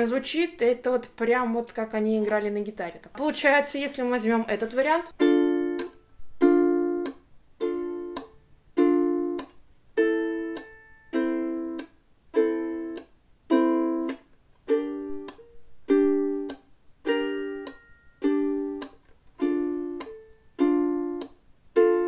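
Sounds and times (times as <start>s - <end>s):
ukulele chords plucked: 5.2s - 22.0s.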